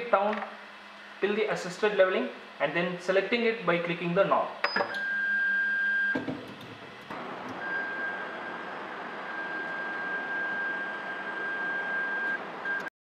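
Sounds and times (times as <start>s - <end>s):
high motor whine: 6.0s - 12.9s.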